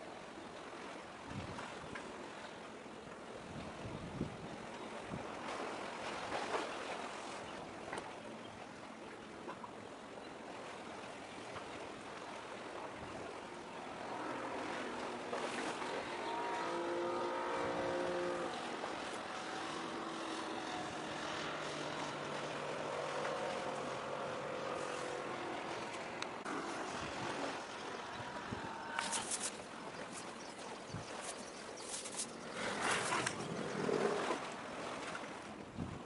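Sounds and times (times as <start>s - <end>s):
wind and sea hiss: 0.0s - 36.0s
passing engine drone: 13.7s - 29.6s.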